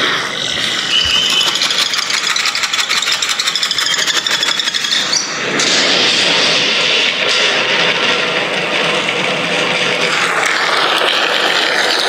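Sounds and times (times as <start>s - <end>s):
phone speakers rasping pulsing sound: 0.0s - 5.1s.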